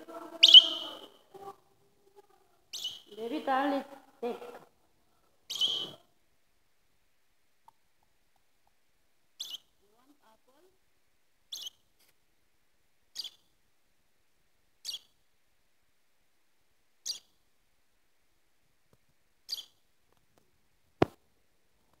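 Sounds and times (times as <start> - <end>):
bird chirping: 0.3 - 1.2, 2.7 - 3.5, 5.5 - 6.1, 9.4 - 9.8, 11.5 - 11.9, 13.1 - 13.5, 14.8 - 15.2, 17.0 - 17.4, 19.5 - 19.8.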